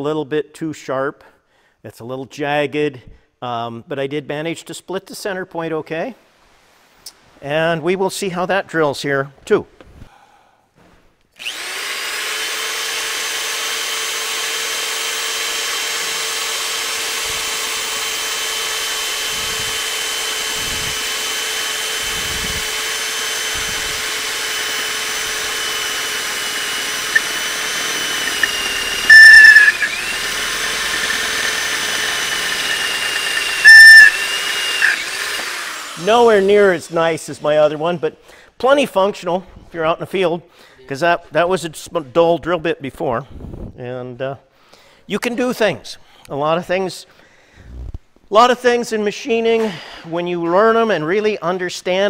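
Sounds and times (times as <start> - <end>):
electric drill whining: 11.4 - 36.8
drill bit squealing: 12.8 - 36.4.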